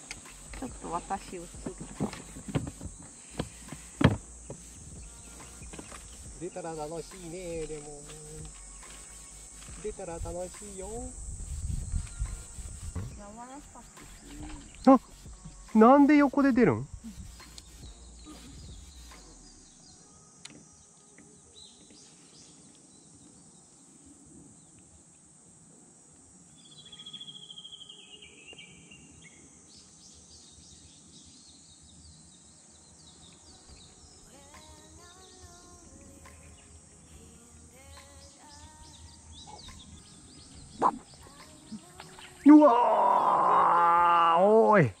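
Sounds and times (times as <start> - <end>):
birds calling: 0.0 - 19.8, 38.0 - 44.0
steady high hiss: 0.0 - 45.0.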